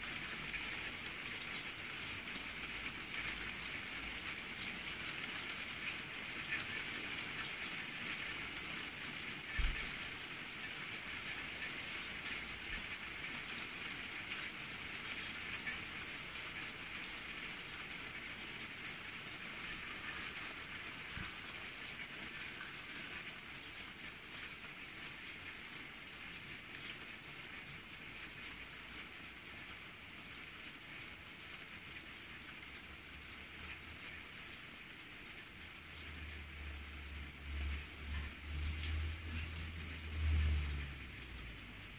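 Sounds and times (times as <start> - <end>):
rain on tiled patio: 0.0 - 41.9.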